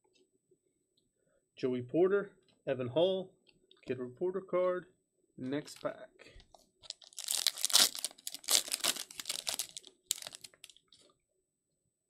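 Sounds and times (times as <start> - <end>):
foil wrapper tearing and crinkling: 6.9 - 10.8.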